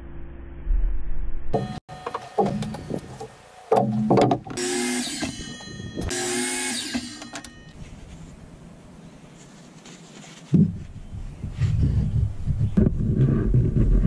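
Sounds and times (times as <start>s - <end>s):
electric miter saw cutting: 4.5s - 7.6s.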